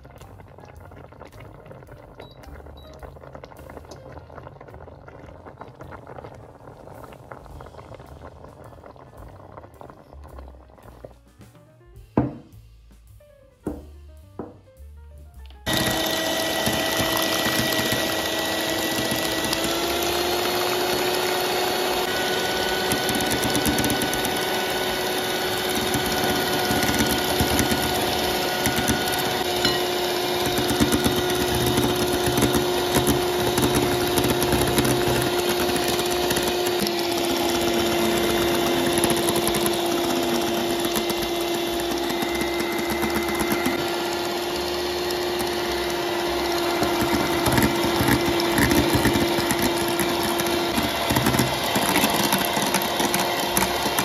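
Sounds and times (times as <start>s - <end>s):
electric hand mixer running: 15.6s - 54.0s.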